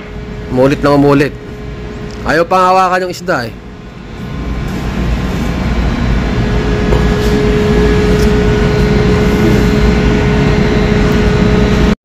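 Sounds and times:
constant hum: 0.0s - 12.0s
ship machinery rumbling: 0.0s - 12.0s.

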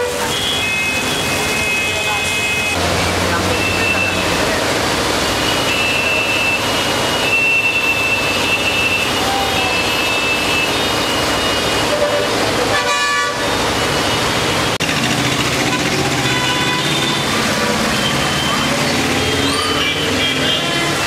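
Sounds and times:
floodwater rushing: 0.0s - 21.0s
heavy rain: 0.0s - 21.0s
high-pitched vehicle horn: 5.5s - 13.6s, 15.6s - 18.7s.

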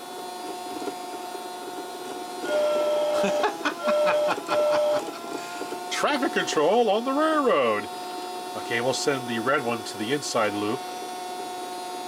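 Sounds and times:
toy train motor humming: 0.0s - 12.0s
toy train whistle blasts: 2.4s - 5.1s.

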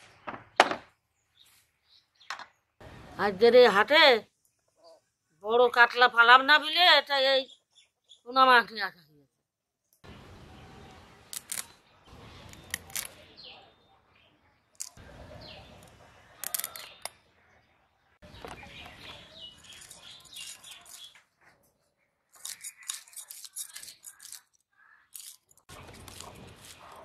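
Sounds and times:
birds chirping: 9.8s - 27.0s.

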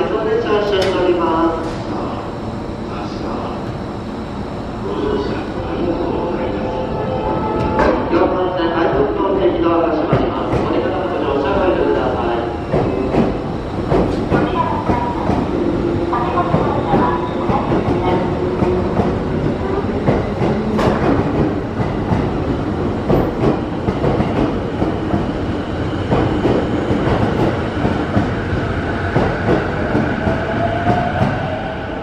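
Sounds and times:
faint rising train whine: 1.4s - 9.6s.

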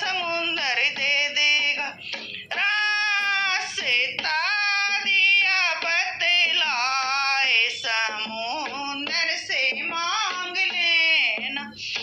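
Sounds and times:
woman singing: 0.0s - 12.0s
singer breathing: 2.0s - 2.5s.

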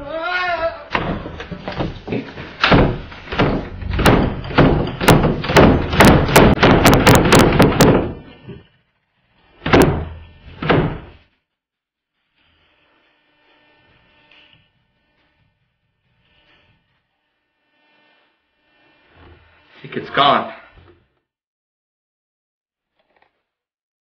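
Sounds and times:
heavy bangs against a door: 0.9s - 8.3s, 9.6s - 11.2s.

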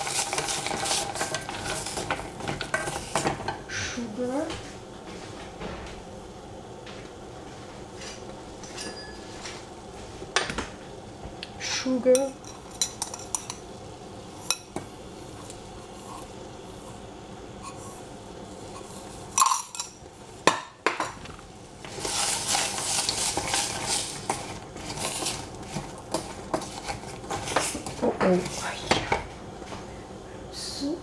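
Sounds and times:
utensil scraping a dish: 0.0s - 3.4s, 21.9s - 28.7s
dishes clinking: 8.6s - 9.6s, 19.3s - 21.3s.

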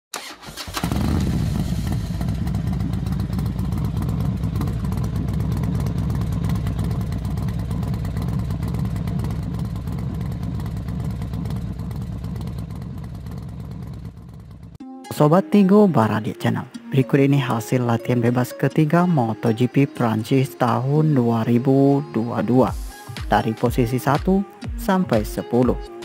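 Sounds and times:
racing motorcycle engines rumbling: 0.8s - 14.8s.

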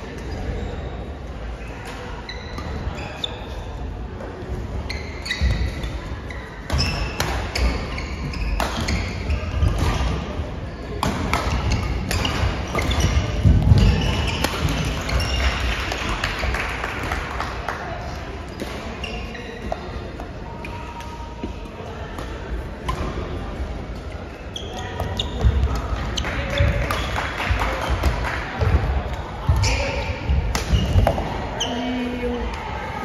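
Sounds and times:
shoes squeaking on court: 1.5s - 3.7s, 4.8s - 10.8s, 11.4s - 15.6s, 18.5s - 20.0s, 24.0s - 27.2s, 29.1s - 32.0s
faint voices: 17.6s - 33.0s.

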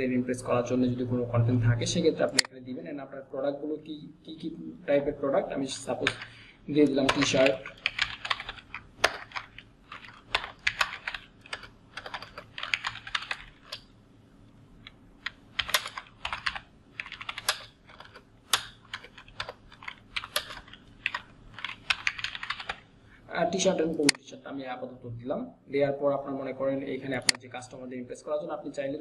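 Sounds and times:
typing on computer keyboard: 6.0s - 13.9s, 15.2s - 22.9s.

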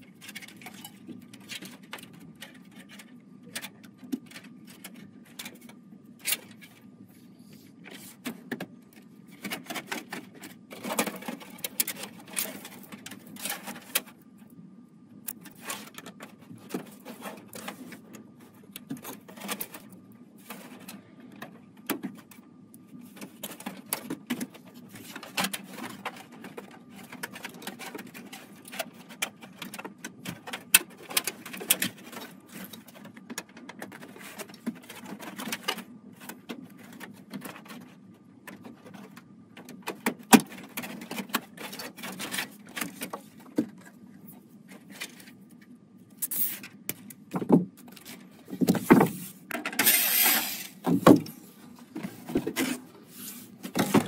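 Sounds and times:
low steady hum: 0.0s - 54.0s.

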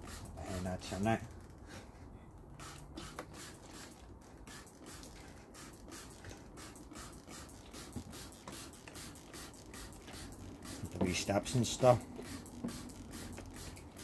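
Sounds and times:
spray bottle hissing: 0.0s - 0.4s, 2.6s - 11.0s, 12.1s - 14.0s.

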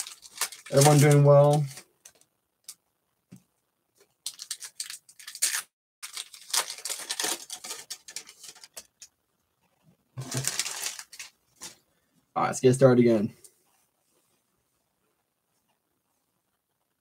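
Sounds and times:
foil wrapper tearing and crinkling: 0.0s - 2.2s, 4.2s - 8.9s, 10.2s - 11.8s.

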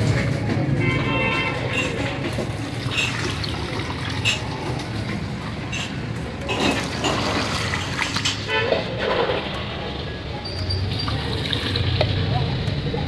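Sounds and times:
juice pouring into basin: 2.6s - 4.9s.

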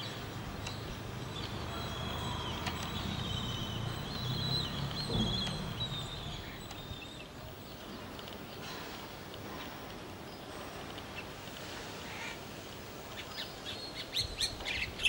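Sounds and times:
other birds calling: 0.0s - 15.0s.

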